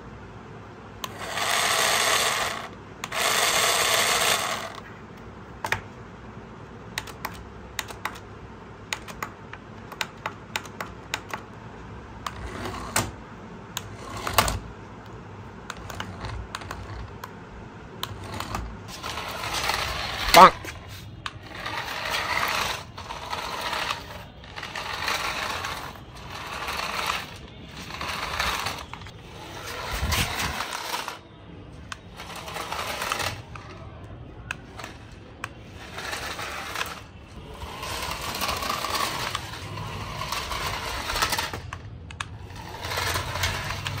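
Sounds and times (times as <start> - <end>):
toy car motor whirring: 1.0 - 4.9, 12.2 - 13.2, 13.8 - 14.6, 15.7 - 17.3, 18.0 - 31.2, 31.9 - 33.9, 34.5 - 44.0
wheels rattling over concrete: 18.3 - 31.2, 42.4 - 44.0.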